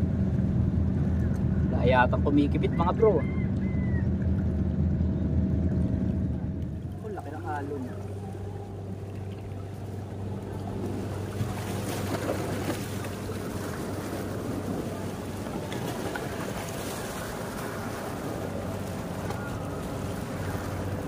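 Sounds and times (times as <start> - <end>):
boat engine droning: 0.0 - 21.0
waves splashing against rocks: 6.7 - 21.0.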